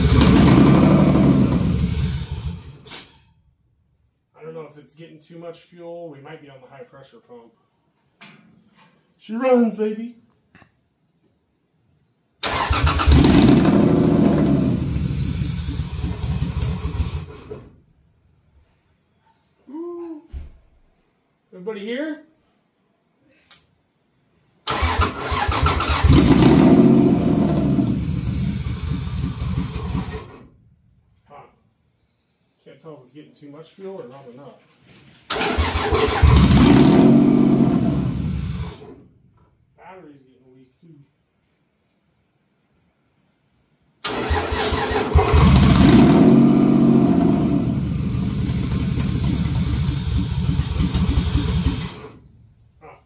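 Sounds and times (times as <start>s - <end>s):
car engine cranking and starting: 0.0s - 3.1s, 12.4s - 17.7s, 24.6s - 30.5s, 35.3s - 39.0s, 44.0s - 52.4s.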